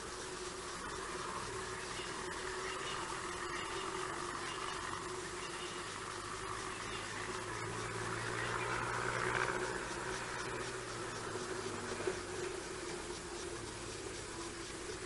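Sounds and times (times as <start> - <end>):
even hiss: 0.0 - 15.0
low hum: 0.0 - 15.0.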